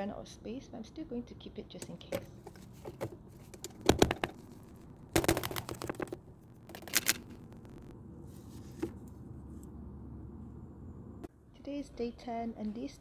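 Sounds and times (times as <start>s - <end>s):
plastic crackling: 2.9s - 7.9s.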